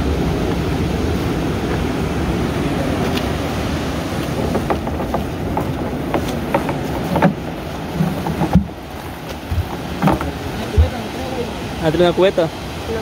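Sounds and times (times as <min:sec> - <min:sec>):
water noise: 0:00.0 - 0:13.0
wind: 0:00.0 - 0:13.0
boat motor running: 0:04.2 - 0:12.0.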